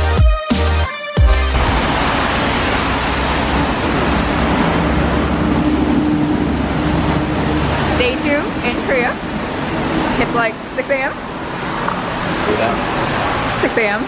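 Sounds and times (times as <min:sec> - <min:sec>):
traffic on wet roads: 0:01.6 - 0:14.0.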